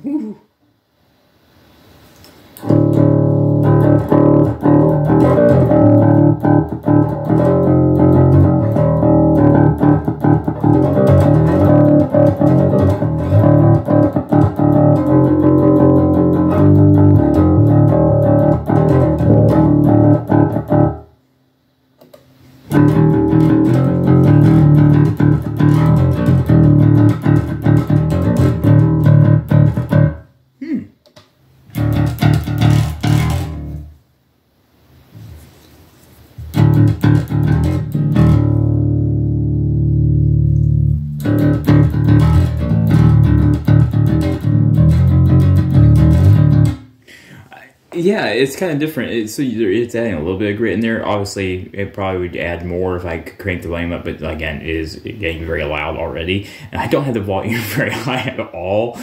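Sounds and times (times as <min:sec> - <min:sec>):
overdriven electric bass riff: 0:02.6 - 0:21.2, 0:22.0 - 0:30.4, 0:31.7 - 0:34.0, 0:36.4 - 0:47.3.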